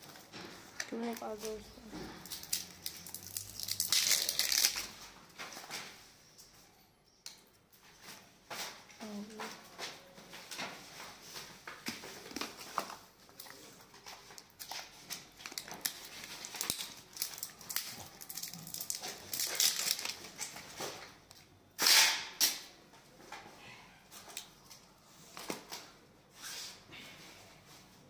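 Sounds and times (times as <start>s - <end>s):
packaging rustling and crinkling: 0.0s - 6.0s, 8.1s - 21.5s.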